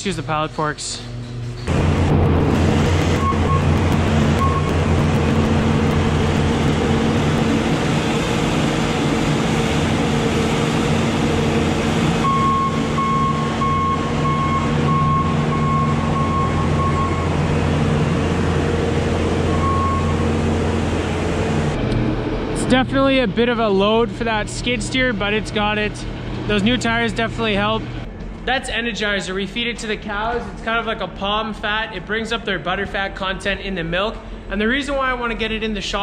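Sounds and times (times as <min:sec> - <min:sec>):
diesel engine under load: 0:01.6 - 0:28.3
backup alarm beeping: 0:02.6 - 0:07.5, 0:12.2 - 0:17.4, 0:19.5 - 0:20.4.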